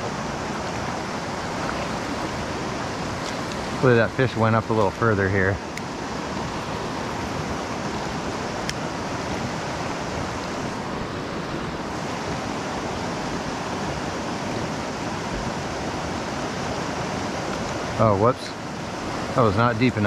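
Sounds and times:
river rushing over cobbles: 0.0s - 20.0s.

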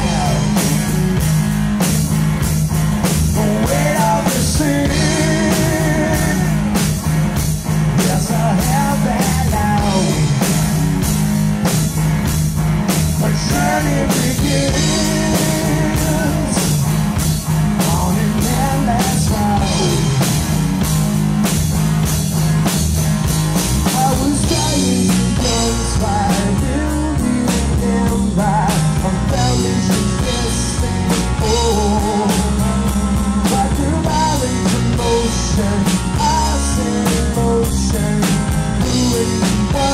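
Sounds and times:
man singing: 0.0s - 1.3s, 3.2s - 7.0s, 7.9s - 11.0s, 13.0s - 16.9s, 17.8s - 20.4s, 23.8s - 39.9s
bass guitar: 0.0s - 39.9s
drum kit beat: 0.0s - 39.9s
electric guitar: 0.0s - 39.9s.

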